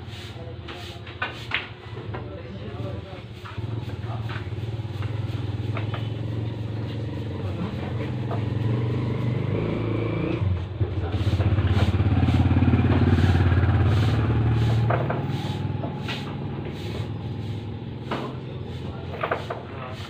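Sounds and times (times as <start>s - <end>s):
broom sweeping concrete: 0.0s - 1.8s, 2.7s - 9.3s, 11.0s - 20.0s
motorcycle engine running: 3.3s - 19.1s.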